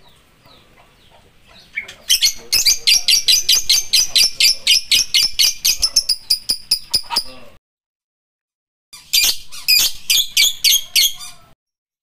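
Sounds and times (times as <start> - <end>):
lovebird shrill chirping: 1.6 - 7.4, 9.0 - 11.5.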